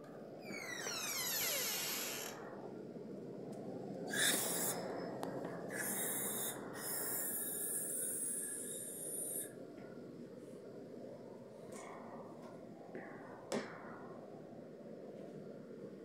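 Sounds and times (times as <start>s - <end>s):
outdoor background noise: 0.0s - 16.0s
door creaking open: 0.4s - 2.4s.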